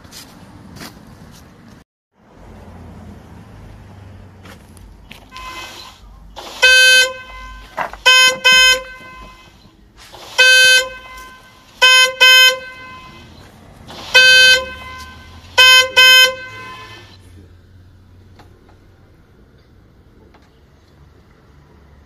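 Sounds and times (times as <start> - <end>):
car horn blasts: 5.1 - 17.2.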